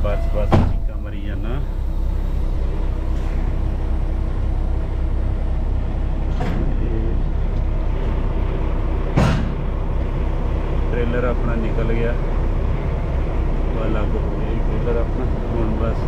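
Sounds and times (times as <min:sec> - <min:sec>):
diesel truck engine running: 0:00.0 - 0:16.0
metal clunk: 0:00.4 - 0:01.0, 0:06.3 - 0:06.8, 0:09.1 - 0:09.7
heavy knock: 0:00.5 - 0:00.9, 0:09.1 - 0:09.7.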